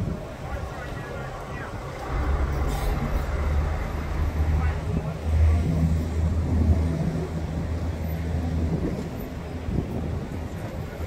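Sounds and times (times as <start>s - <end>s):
passing road traffic: 0.0s - 11.0s
fire truck diesel engine idling: 0.4s - 6.4s.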